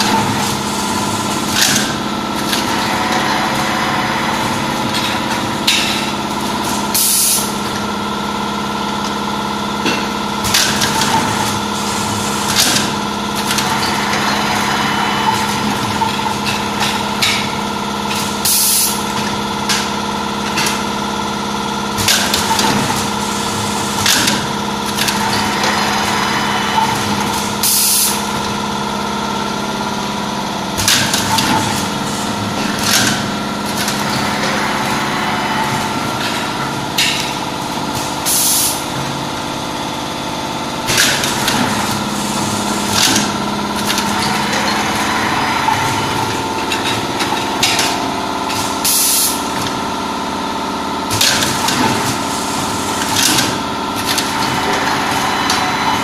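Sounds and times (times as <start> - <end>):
machine mechanical hum: 0.0 - 56.0.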